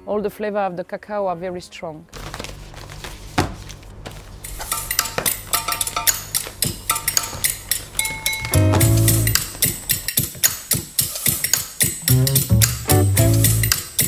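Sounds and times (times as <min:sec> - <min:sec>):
dishes and cutlery clattering: 0:04.5 - 0:08.6.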